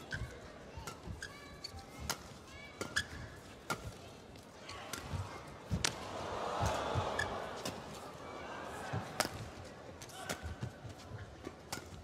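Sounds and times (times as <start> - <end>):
shoes squeaking on court: 0.0 - 4.0
crowd noise: 0.0 - 12.0
racket hitting shuttlecock: 2.0 - 4.0, 8.9 - 10.8, 11.4 - 12.0.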